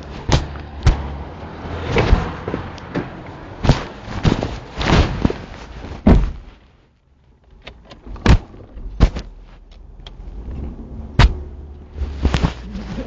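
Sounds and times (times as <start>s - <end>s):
sharp thuds and knocks: 0.0s - 6.7s, 8.0s - 9.4s, 11.1s - 13.0s.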